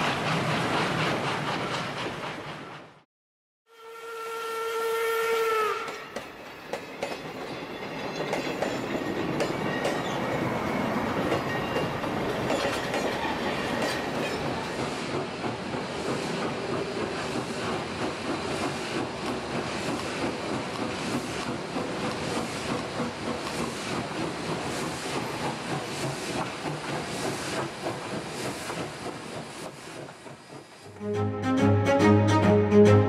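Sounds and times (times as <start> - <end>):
steam locomotive whistle: 3.7 - 6.2
locomotive rumble and hiss: 14.7 - 30.9.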